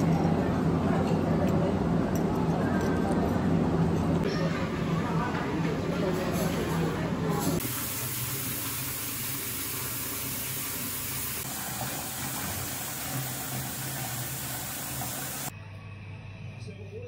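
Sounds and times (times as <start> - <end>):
bath tap water running and splashing: 7.6 - 15.5.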